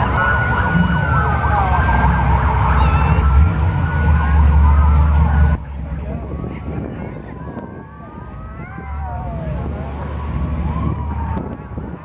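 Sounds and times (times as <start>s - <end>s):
siren wailing and yelping: 0.0s - 5.6s
car engines running: 0.0s - 12.0s.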